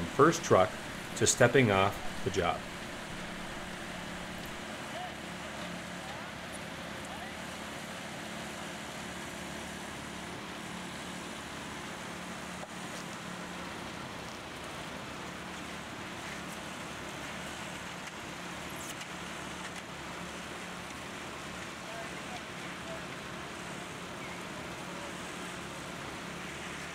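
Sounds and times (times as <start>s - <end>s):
engine running with low hum: 0.0s - 26.9s.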